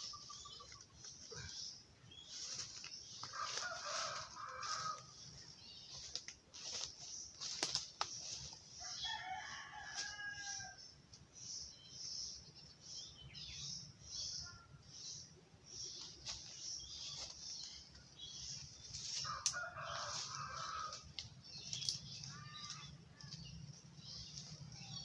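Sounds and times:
rooster crowing: 3.4 - 5.1, 8.8 - 10.8, 19.3 - 21.0.

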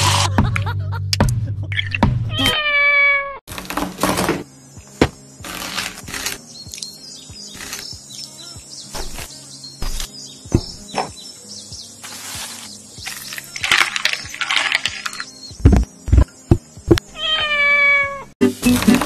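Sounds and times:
cat meowing: 2.3 - 3.4, 17.2 - 18.3.

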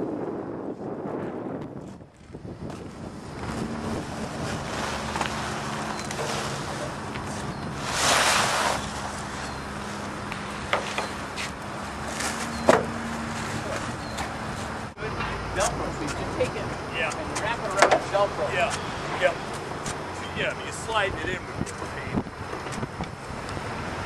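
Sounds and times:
wind noise on microphone: 0.0 - 14.9, 18.7 - 24.0
low motor hum: 0.9 - 20.2.

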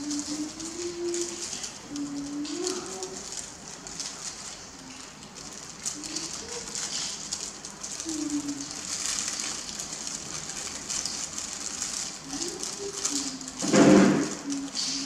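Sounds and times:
dove cooing: 0.0 - 3.4
plastic gloves crinkling: 0.0 - 15.0.

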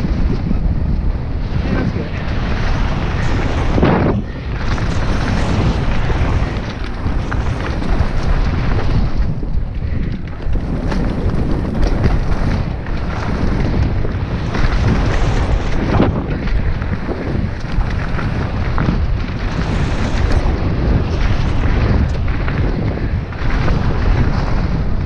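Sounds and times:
bike tyres rumbling on dirt trail: 0.0 - 25.0
wind buffeting microphone: 0.0 - 25.0
bike jolt: 2.4 - 25.0.

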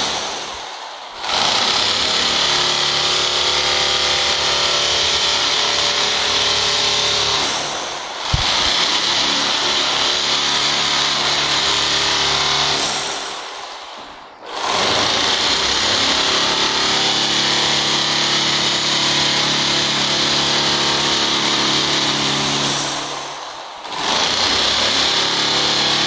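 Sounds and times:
hammer drill chiselling concrete: 0.0 - 26.0
sharp click of drill: 8.2 - 9.6.

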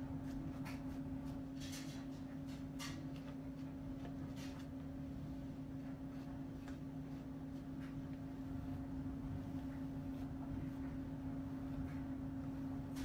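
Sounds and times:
soft brushing or tapping: 5.8 - 13.0.

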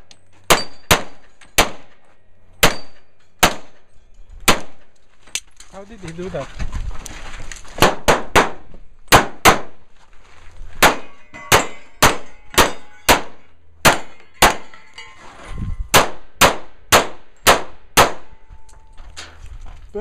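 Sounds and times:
steel targets ringing: 0.2 - 1.7, 2.5 - 4.2, 10.9 - 16.0.

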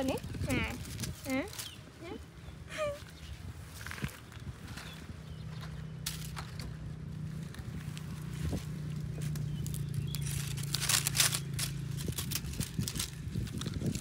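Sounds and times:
dry palm fronds crackling: 0.0 - 14.0.

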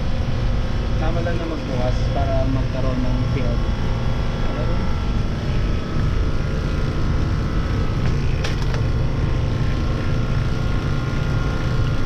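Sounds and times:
faint steady whine: 0.0 - 12.0
machinery low drone: 0.0 - 12.0.

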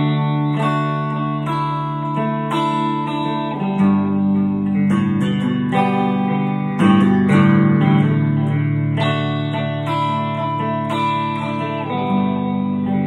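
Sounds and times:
electric guitar strumming chords: 0.0 - 13.0.

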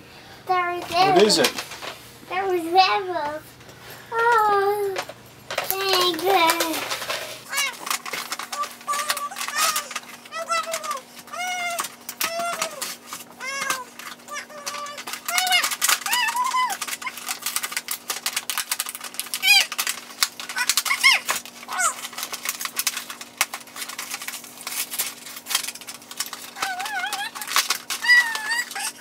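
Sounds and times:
packaging crinkling and clicking: 0.8 - 2.0, 4.3 - 29.0
young child vocalizing: 8.6 - 16.8.

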